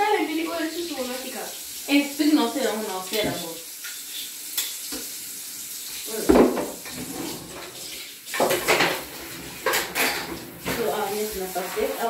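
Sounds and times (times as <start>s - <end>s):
tap running into sink: 3.1s - 4.0s, 4.6s - 5.2s, 6.2s - 11.5s
splashing water: 5.9s - 12.0s
knock against sink: 6.2s - 6.8s.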